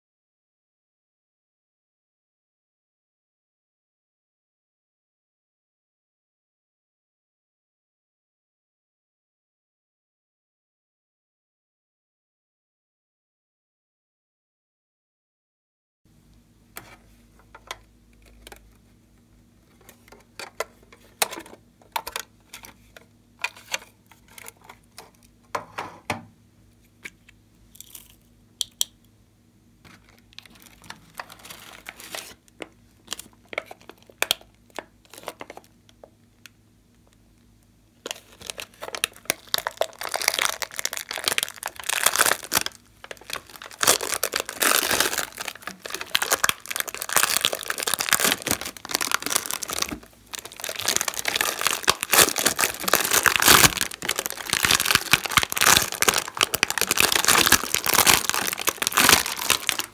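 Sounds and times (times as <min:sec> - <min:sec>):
plastic tray crinkling: 0:19.7 - 0:25.2, 0:29.9 - 0:36.1, 0:38.0 - 0:59.9.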